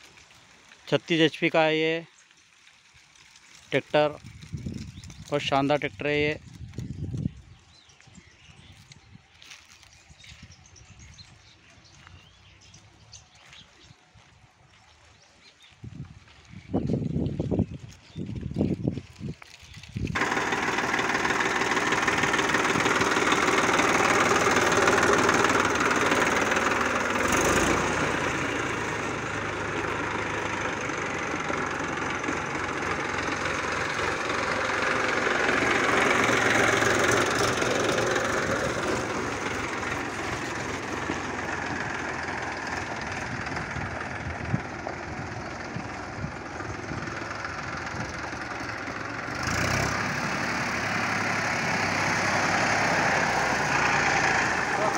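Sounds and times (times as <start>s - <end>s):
tractor diesel engine running: 18.2s - 54.9s.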